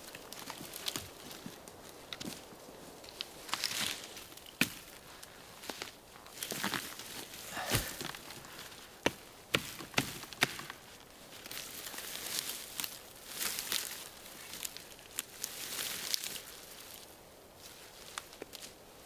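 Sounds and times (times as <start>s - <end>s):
roots tearing: 0.0s - 18.8s
dry twigs crackling: 0.0s - 19.0s.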